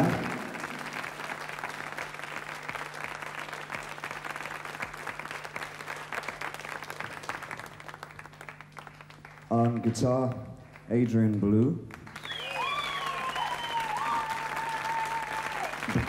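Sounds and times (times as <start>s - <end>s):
steady low hum: 0.0s - 12.3s
audience applauding: 0.0s - 16.0s.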